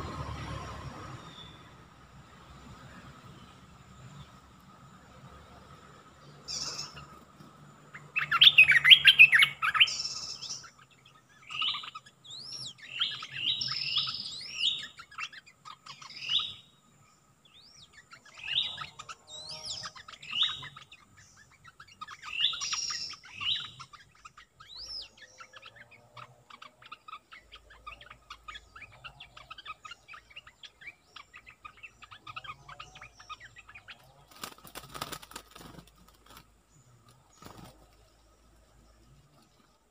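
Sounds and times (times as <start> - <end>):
bird whistled song: 1.1 - 1.8, 6.4 - 7.1, 7.9 - 16.8, 17.5 - 34.0
faint bird chirps: 2.7 - 39.9.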